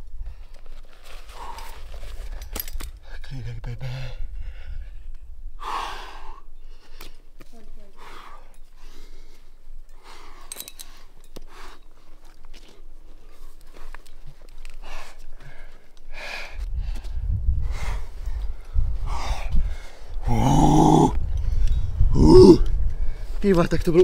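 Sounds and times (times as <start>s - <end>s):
person breathing hard: 3.9s - 7.2s, 14.7s - 23.4s.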